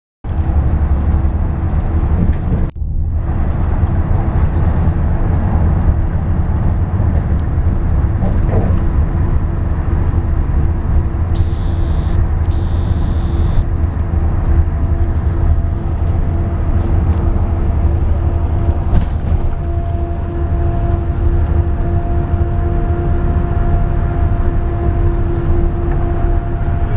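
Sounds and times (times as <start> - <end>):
bus engine and road rumble: 0.3 - 26.9
faint constant hum: 11.4 - 13.7.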